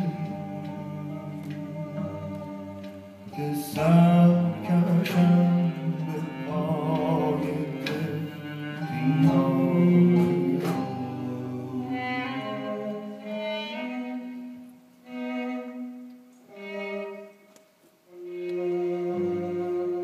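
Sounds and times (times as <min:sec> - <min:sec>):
plucked lute: 0:00.0 - 0:12.6
man singing with vibrato: 0:00.0 - 0:13.2
bowed string instrument: 0:00.0 - 0:20.0.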